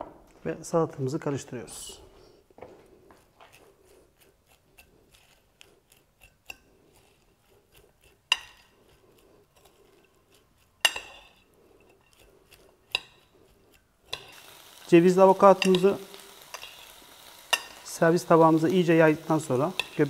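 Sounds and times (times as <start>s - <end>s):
forks clinking against bowl: 10.8s - 11.4s, 15.6s - 15.9s, 19.7s - 20.0s.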